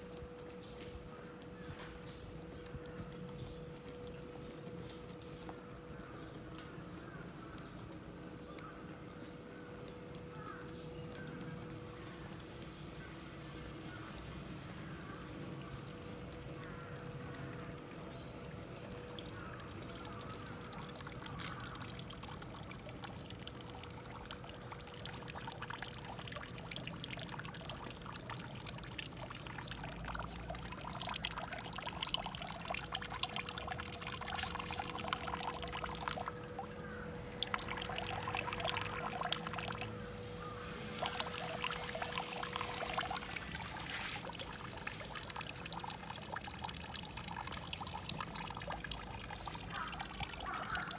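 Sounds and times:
faint steady tone: 0.0s - 50.9s
water pouring and splashing: 0.0s - 50.9s.

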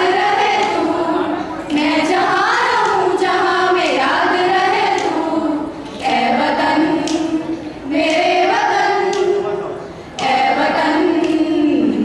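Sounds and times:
girls singing together: 0.0s - 12.0s.

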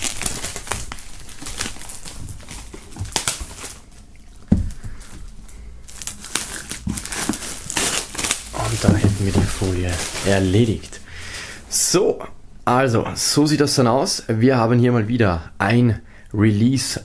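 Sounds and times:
plastic film crinkling: 0.0s - 11.0s.

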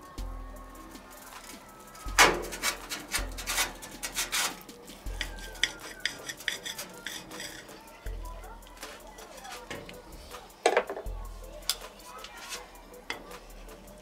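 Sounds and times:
knife scraping on ceramic plate: 5.2s - 7.8s.

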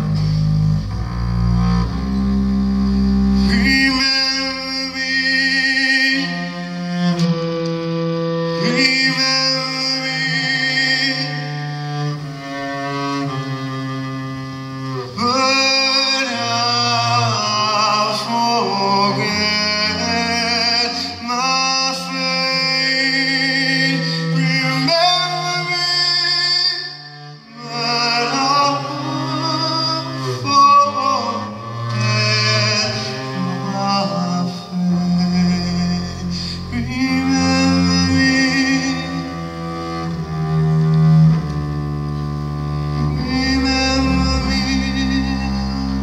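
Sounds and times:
bowed double bass: 0.0s - 46.0s
man singing: 3.4s - 7.3s, 8.6s - 12.0s, 15.1s - 39.5s, 43.0s - 46.0s.

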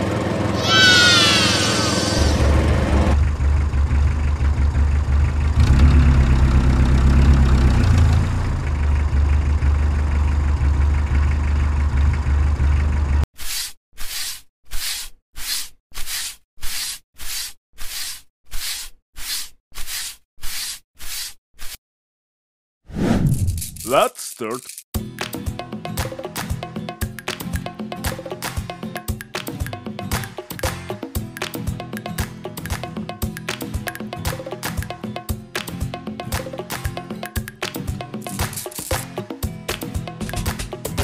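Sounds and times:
tractor engine drone: 0.0s - 13.2s.

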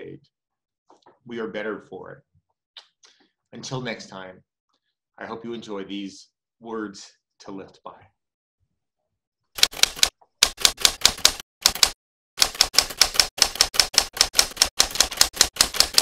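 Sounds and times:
typewriter keys striking: 9.6s - 16.0s.

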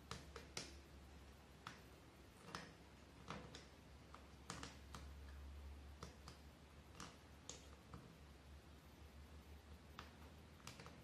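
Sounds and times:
thread clicking over nails: 0.0s - 8.5s, 9.6s - 11.0s
low steady hum: 0.0s - 11.0s.

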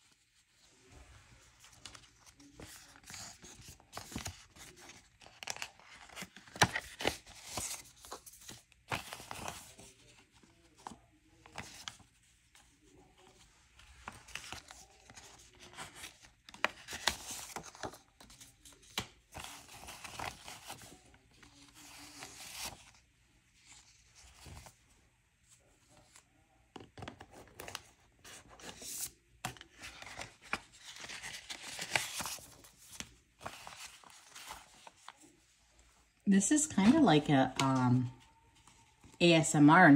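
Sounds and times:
paper banknotes rustling: 1.6s - 23.0s, 27.0s - 35.4s.

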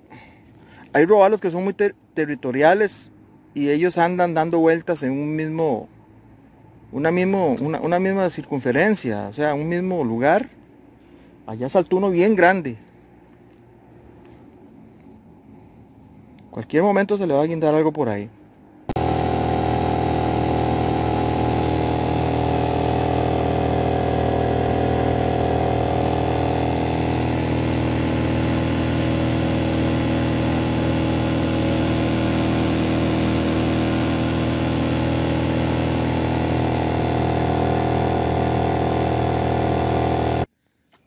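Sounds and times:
outboard motor running: 19.0s - 40.5s.

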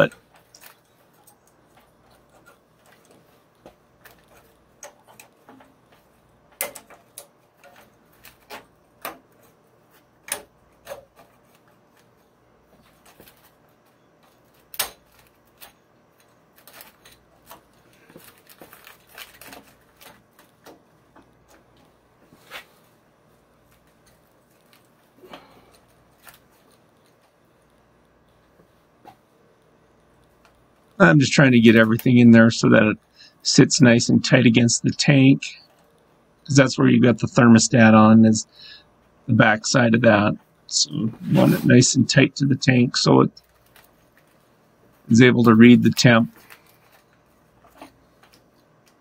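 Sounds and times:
clicks taps and rustling of wires: 0.0s - 31.0s, 31.6s - 32.3s, 43.3s - 49.0s.

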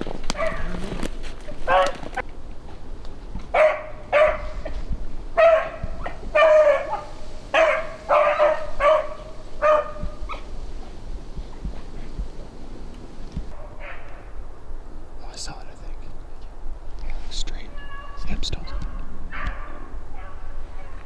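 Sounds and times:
beagle baying: 0.3s - 0.9s, 1.6s - 2.2s, 3.5s - 11.7s, 13.5s - 14.4s, 17.7s - 21.0s.

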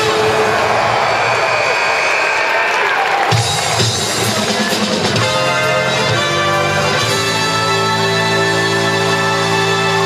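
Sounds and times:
music of long held chords: 3.8s - 10.0s.

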